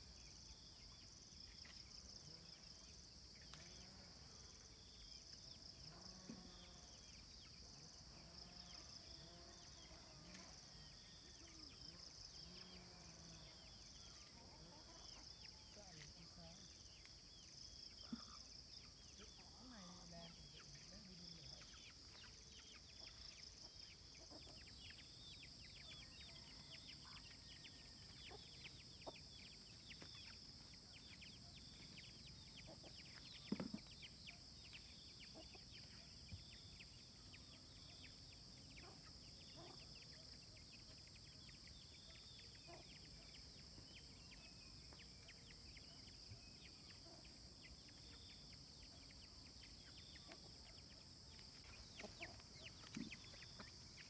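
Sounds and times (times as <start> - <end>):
high insect drone: 1.6 - 24.1.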